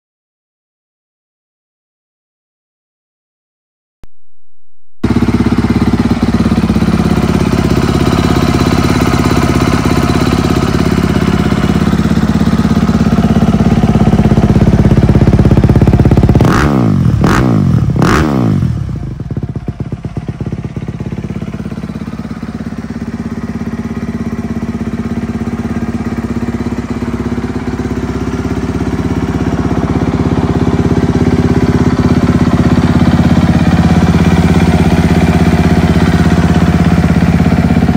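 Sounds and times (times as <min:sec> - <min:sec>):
engine revving: 0:05.0 - 0:19.2
motorcycle engine idling: 0:05.0 - 0:37.9.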